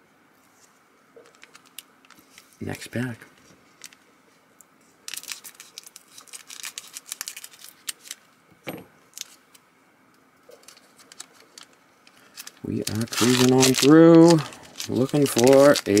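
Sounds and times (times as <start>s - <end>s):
foil wrapper crinkling: 1.2s - 2.8s, 3.4s - 4.0s, 5.1s - 8.3s, 9.1s - 9.6s, 10.5s - 16.0s
scissors cutting foil wrapper: 5.1s - 8.2s, 10.6s - 16.0s.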